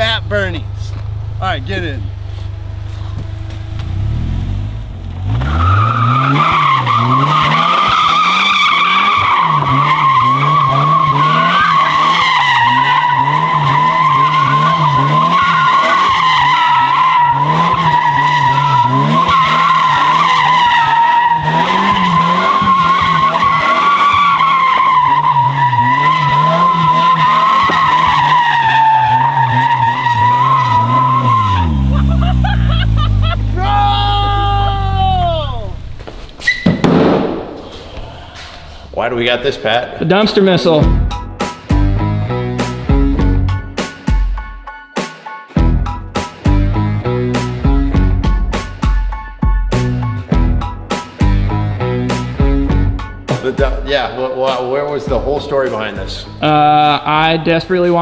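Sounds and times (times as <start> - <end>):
engine revving: 0.0 - 36.0, 49.8 - 53.6
tire squealing: 0.0 - 44.1, 45.6 - 58.0.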